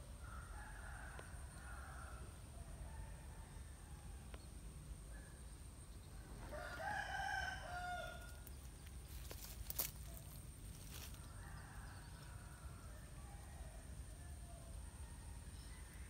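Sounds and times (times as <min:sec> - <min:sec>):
rooster crowing: 0:06.4 - 0:08.5.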